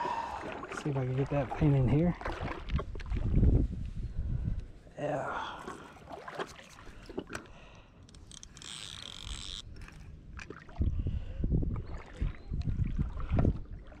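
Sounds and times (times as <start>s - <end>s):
wind rumbling on microphone: 1.1s - 4.9s, 9.1s - 14.0s
fishing reel clicks and rattles: 8.0s - 10.1s.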